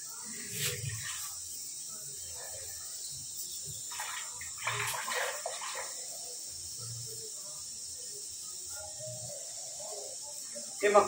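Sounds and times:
buttermilk sloshing in a steel pot: 3.9 - 6.1.

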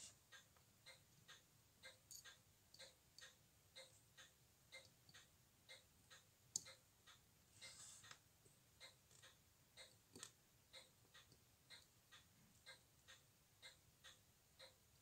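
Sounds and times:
clock ticking: 0.0 - 15.0.

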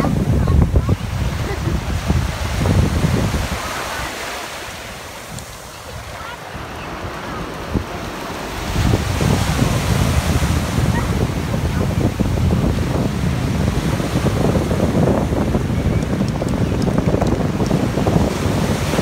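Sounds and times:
small waves washing on sand: 0.0 - 19.0.

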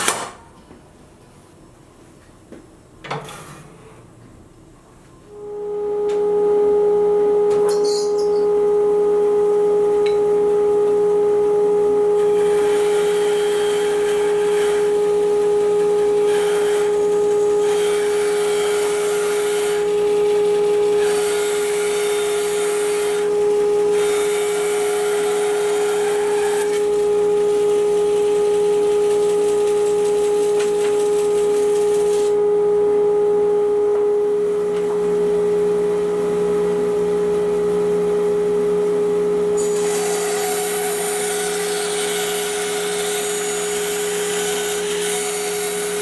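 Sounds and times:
bandsaw humming: 39.6 - 46.0.

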